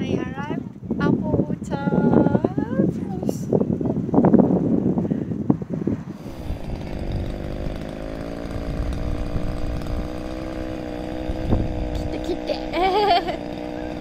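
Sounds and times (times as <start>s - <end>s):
chainsaw cutting wood: 6.2s - 14.0s.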